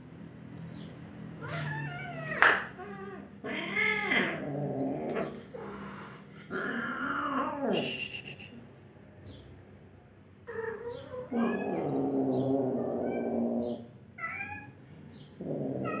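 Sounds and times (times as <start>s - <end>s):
cats yowling: 1.4s - 7.8s, 10.4s - 16.0s.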